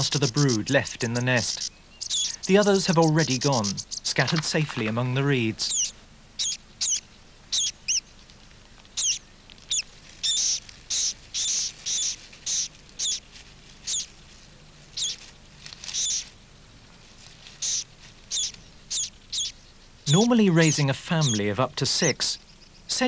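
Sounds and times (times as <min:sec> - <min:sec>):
bird high chirps: 0:00.0 - 0:08.3, 0:08.9 - 0:15.2, 0:15.8 - 0:16.3, 0:17.6 - 0:23.0.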